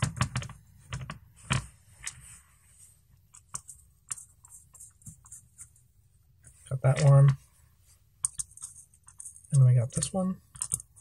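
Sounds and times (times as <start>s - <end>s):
small hardware clicking and tapping: 8.2s - 11.0s.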